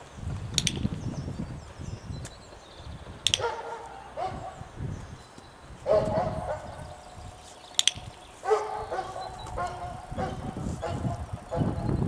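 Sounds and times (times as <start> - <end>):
training clicker click: 0.5 - 1.0, 3.2 - 4.0, 7.6 - 8.3
puppy barking: 3.3 - 4.7, 5.8 - 7.0, 8.4 - 11.9.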